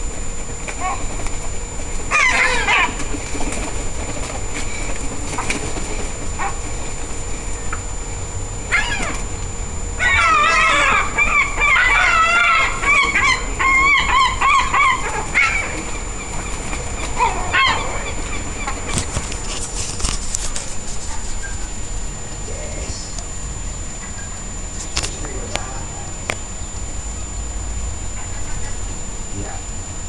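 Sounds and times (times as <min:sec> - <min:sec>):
gulls calling: 0:00.0 - 0:20.0, 0:20.6 - 0:30.0
clicks and rustles: 0:18.9 - 0:21.4.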